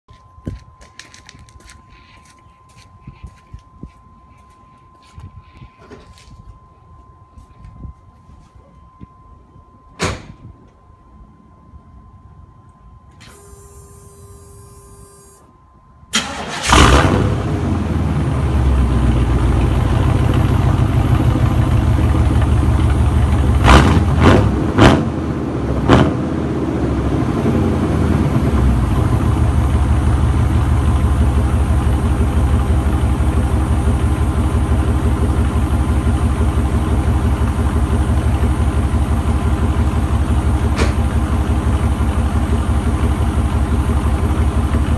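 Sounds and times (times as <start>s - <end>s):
car engine cranking and starting: 16.1s - 44.9s
engine throttle blips: 16.1s - 44.9s
car engine idling loudly: 18.0s - 24.2s, 26.9s - 44.9s.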